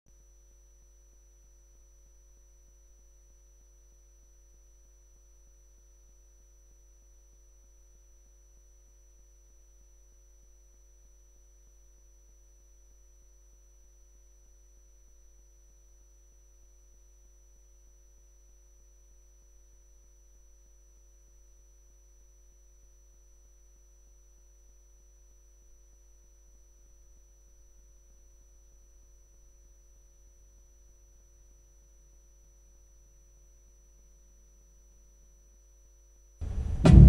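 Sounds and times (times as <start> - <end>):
faint low hum: 36.4 - 37.0.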